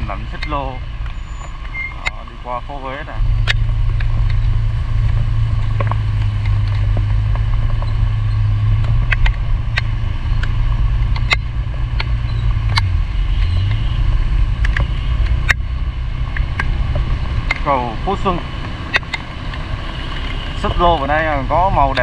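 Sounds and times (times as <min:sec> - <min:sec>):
rain hissing on wet road: 0:00.0 - 0:11.1, 0:11.7 - 0:22.0
motorbike engine hum: 0:00.0 - 0:22.0
sharp ticks: 0:03.4 - 0:21.3.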